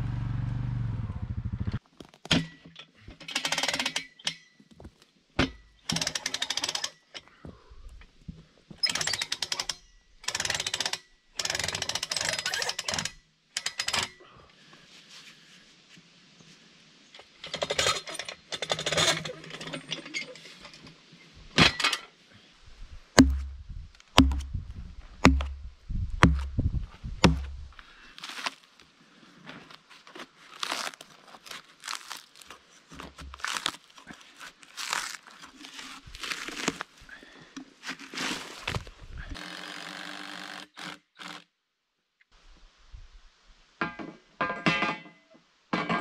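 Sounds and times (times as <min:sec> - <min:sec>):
sharp knocks: 0:23.2 - 0:23.6, 0:24.2 - 0:24.6, 0:25.2 - 0:25.6, 0:26.2 - 0:26.6, 0:27.2 - 0:27.6
heavy thuds: 0:23.2 - 0:27.8.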